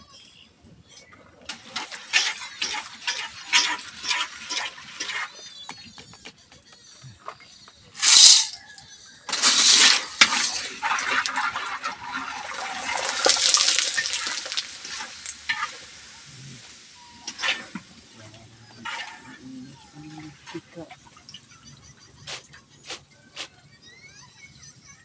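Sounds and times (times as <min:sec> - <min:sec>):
macaroni hissing in hot oil: 0:01.5 - 0:05.6, 0:08.0 - 0:08.7, 0:09.3 - 0:20.9
pasta sizzling in oil: 0:01.5 - 0:05.6, 0:08.0 - 0:08.6, 0:09.3 - 0:20.9.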